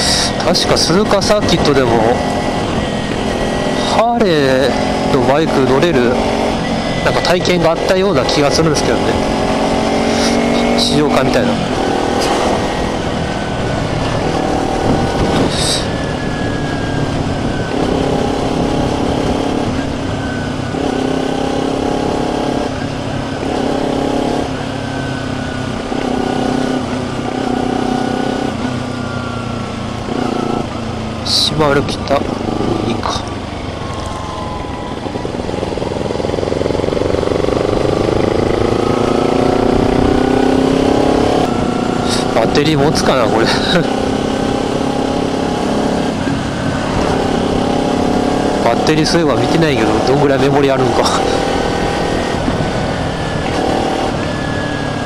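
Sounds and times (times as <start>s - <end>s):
motorcycle engine cruising: 0.0s - 55.0s
wind noise on microphone: 12.2s - 20.7s, 51.5s - 54.3s.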